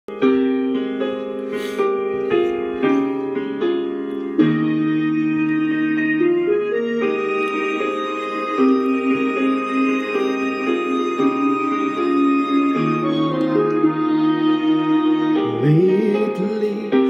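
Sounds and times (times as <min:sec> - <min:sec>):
piano-like keyboard chords: 0:00.1 - 0:17.0.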